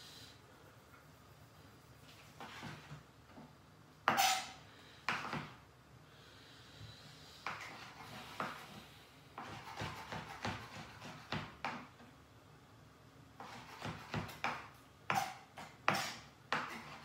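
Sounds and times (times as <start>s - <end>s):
knife chopping on cutting board: 9.4s - 11.9s, 13.4s - 17.0s.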